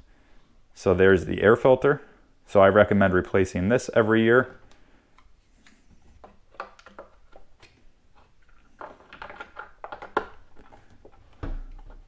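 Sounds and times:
plastic clicks and rubbing: 4.6s - 12.0s.

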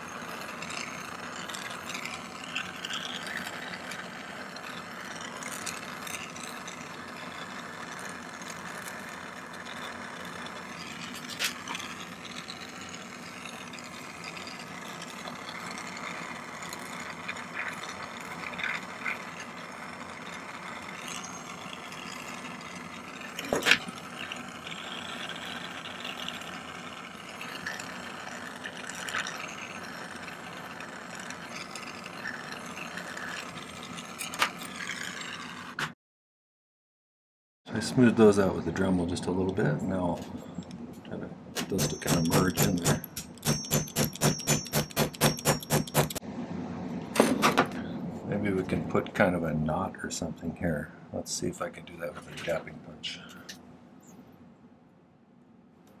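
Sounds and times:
gas torch flame hissing: 0.0s - 33.8s
metal tools clicking: 41.6s - 46.2s.

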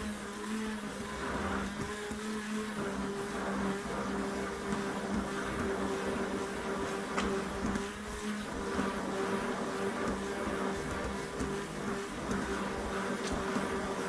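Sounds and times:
stick blender motor humming: 0.0s - 14.0s.

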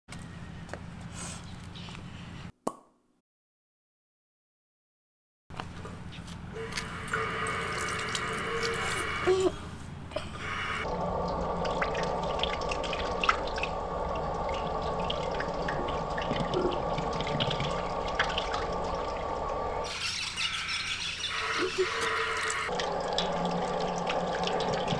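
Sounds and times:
fountain water splashing on grate: 6.6s - 9.1s
small water drips: 6.6s - 9.1s, 11.1s - 24.9s.

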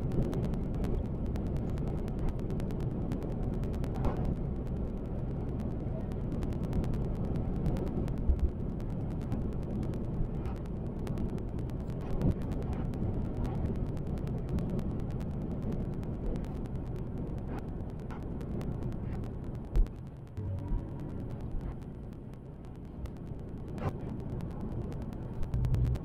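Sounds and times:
faint rapid clicks: 0.0s - 26.0s
road and engine rumble: 17.4s - 26.0s.

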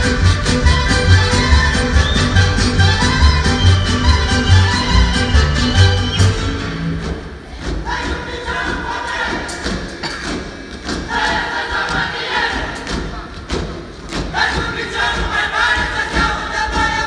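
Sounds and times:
folk orchestra playing: 0.0s - 7.2s
feet stamping on wooden stage: 0.0s - 17.0s
women singing: 7.6s - 10.4s, 11.0s - 13.2s, 14.2s - 17.0s.

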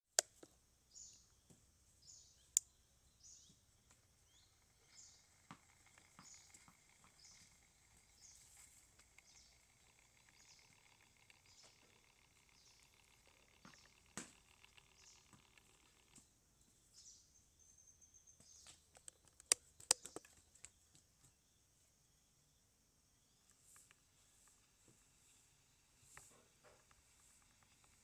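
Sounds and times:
bird chirping: 0.1s - 28.0s
faint steady hiss: 0.2s - 28.0s
soft ticks: 5.3s - 16.3s
sharp click: 18.9s - 20.4s.

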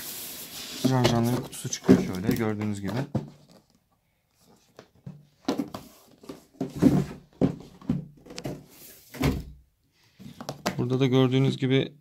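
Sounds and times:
cardboard box knocks and scrapes: 5.2s - 9.4s.

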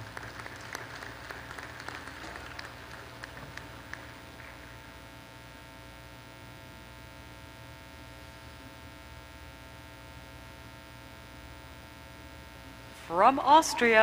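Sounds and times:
scattered applause: 0.0s - 4.8s
steady low hum with tones: 0.0s - 14.0s.

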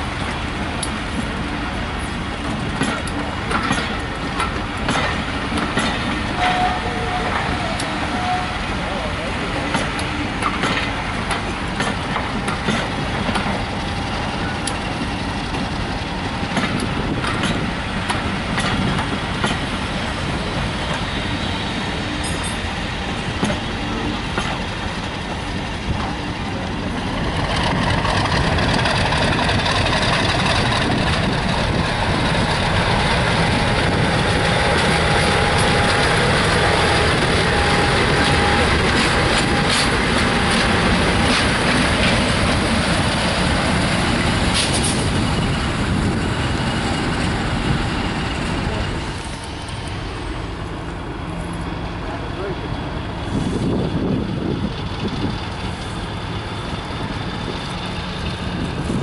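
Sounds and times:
diesel locomotive engine: 0.0s - 59.0s
train wheels clicking over rail joints: 0.1s - 8.4s, 9.5s - 52.0s, 53.0s - 59.0s.

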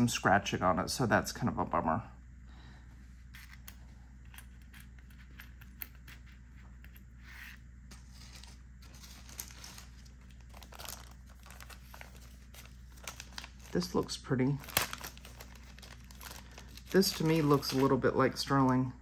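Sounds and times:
low steady hum: 0.0s - 19.0s
plastic zip bag crinkling: 8.0s - 18.5s.

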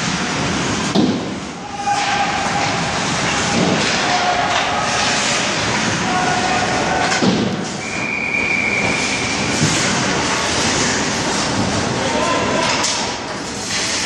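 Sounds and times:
ice hockey rink noise: 0.0s - 14.0s
whistle-like tone: 7.8s - 9.6s.

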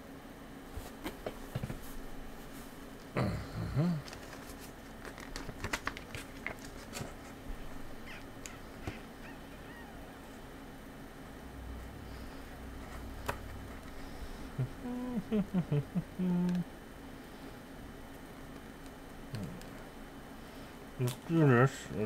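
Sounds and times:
man humming: 3.1s - 4.2s, 14.4s - 16.8s, 19.3s - 19.8s
plastic packets crinkling: 4.0s - 7.4s.

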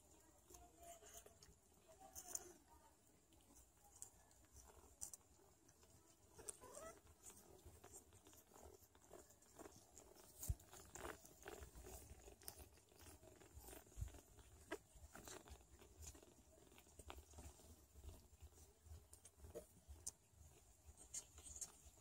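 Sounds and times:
kittens shuffling on a blanket: 0.0s - 22.0s
cat licking: 3.3s - 22.0s.

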